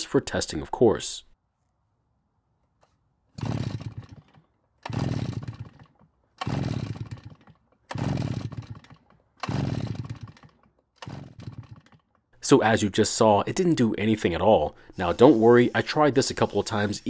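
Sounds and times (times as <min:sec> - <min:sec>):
recoil starter pulls: 0:03.4 - 0:12.3.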